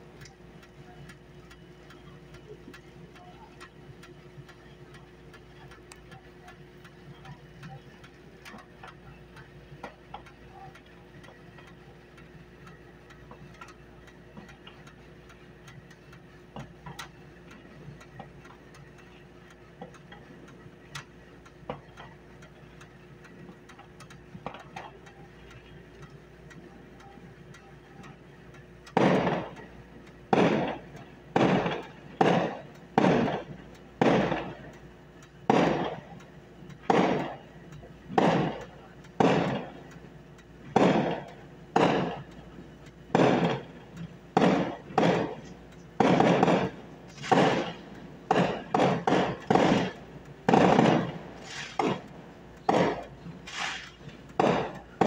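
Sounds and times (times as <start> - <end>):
distant firework pops: 28.9 - 29.7, 30.3 - 34.6, 35.5 - 36.0, 36.9 - 37.4, 38.1 - 39.8, 40.8 - 42.2, 43.1 - 43.7, 44.4 - 52.1, 52.7 - 55.0
loud aerial firework bangs: 29.0 - 29.6, 30.3 - 30.8, 31.4 - 34.6, 35.5 - 36.0, 36.9 - 37.4, 38.2 - 39.7, 40.8 - 42.2, 43.1 - 43.6, 44.4 - 52.1, 52.7 - 55.0.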